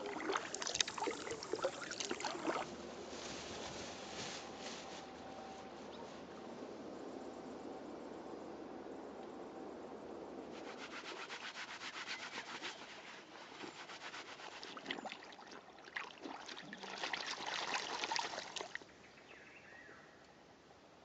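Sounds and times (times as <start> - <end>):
water splashing and sloshing: 0.0 - 4.7, 10.6 - 18.8
cloth rubbing in water: 0.0 - 5.2, 10.6 - 18.8.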